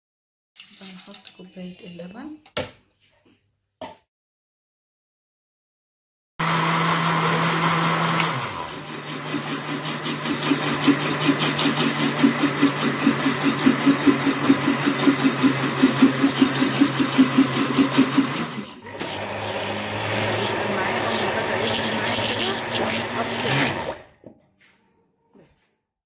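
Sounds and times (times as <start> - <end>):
blender motor churning: 6.4 - 24.1.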